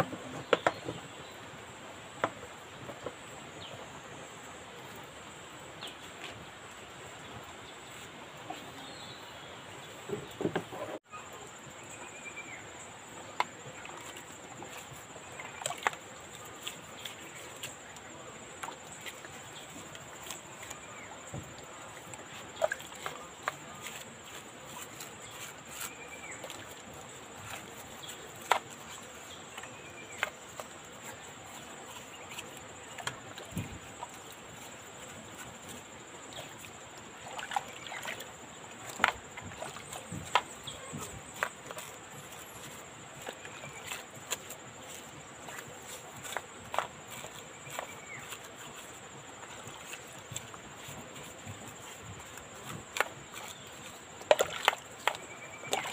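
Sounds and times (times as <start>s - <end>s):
brush swishing in soapy water: 13.7s - 55.9s.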